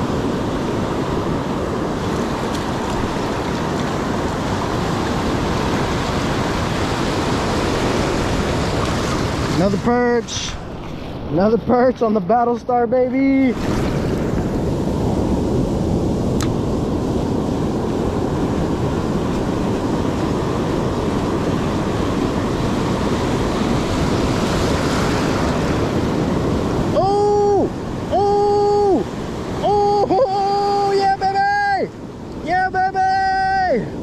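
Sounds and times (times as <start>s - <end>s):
ocean surf washing onto beach: 0.0s - 34.0s
wind on microphone: 13.5s - 30.9s.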